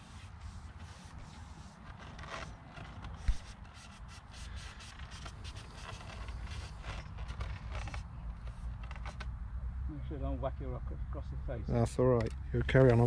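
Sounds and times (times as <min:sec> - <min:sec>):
rustling: 0:00.0 - 0:09.3.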